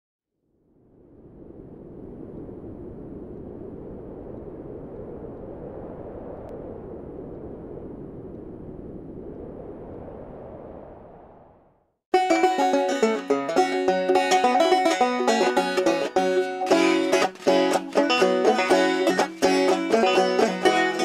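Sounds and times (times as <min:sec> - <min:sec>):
rushing wind: 0:00.8 - 0:11.8.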